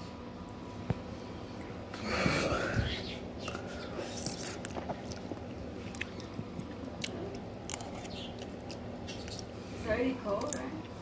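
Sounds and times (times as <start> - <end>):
person chewing soft food: 1.5 - 9.8
wet mouth clicks and smacks: 4.2 - 9.5.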